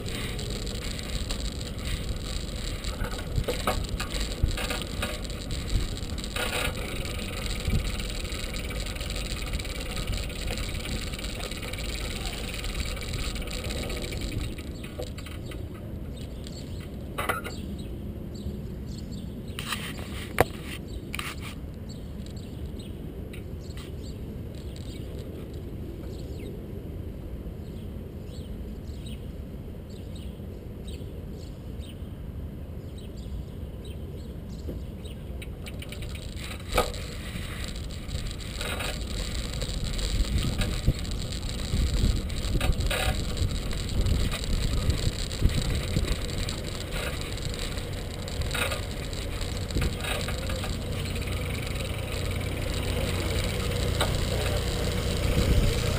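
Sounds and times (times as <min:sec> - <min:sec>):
bicycle knocking over bumps: 0:00.0 - 0:15.6, 0:35.7 - 0:55.9
bicycle rattling: 0:00.0 - 0:16.8, 0:24.0 - 0:25.7, 0:35.4 - 0:55.9
wind: 0:00.0 - 0:55.9.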